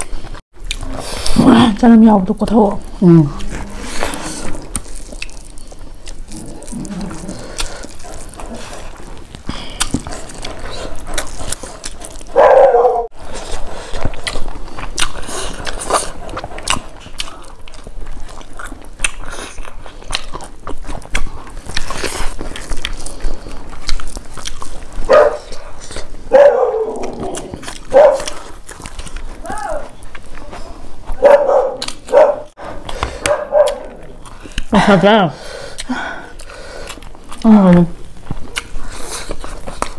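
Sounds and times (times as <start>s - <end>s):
wet chewing and lip smacking: 0.0s - 1.4s, 2.6s - 39.9s
fingers squelching food: 3.3s - 26.2s.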